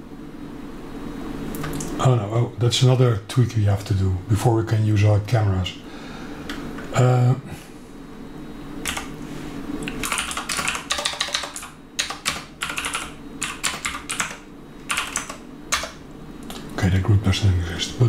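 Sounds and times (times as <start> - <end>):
keyboard typing clicks: 8.8 - 9.1, 9.9 - 16.6.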